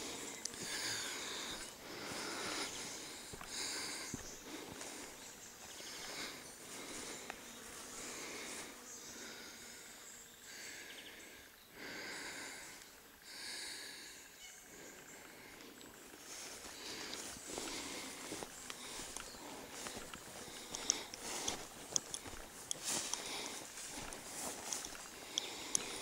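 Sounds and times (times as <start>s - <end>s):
footsteps through long grass: 0.0s - 8.7s, 15.9s - 26.0s.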